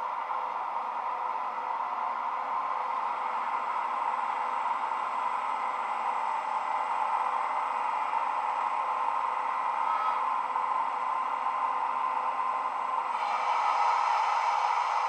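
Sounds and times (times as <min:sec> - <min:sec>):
steady hissing hum with tones: 0:00.0 - 0:15.0.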